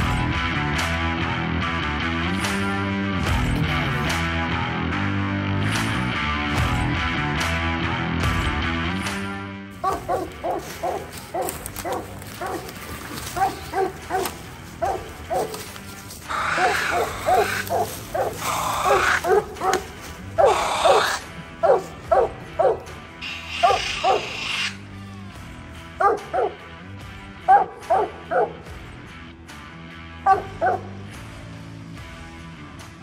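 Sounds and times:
faint background music: 0:09.3 - 0:33.0
dog barking: 0:09.8 - 0:15.6, 0:16.3 - 0:22.8, 0:23.4 - 0:24.6, 0:26.0 - 0:26.6, 0:27.4 - 0:28.6, 0:30.2 - 0:31.0
brush rustling: 0:09.8 - 0:22.0.

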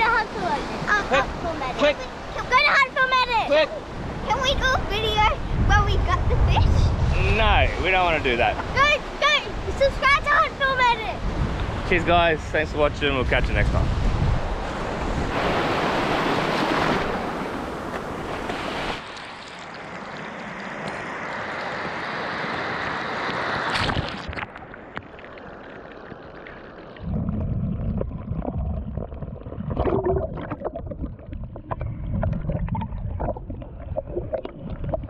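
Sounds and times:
surf washing on beach: 0:00.0 - 0:25.0
wind noise on microphone: 0:03.8 - 0:19.0, 0:27.0 - 0:35.0
low rumble: 0:27.0 - 0:35.0.

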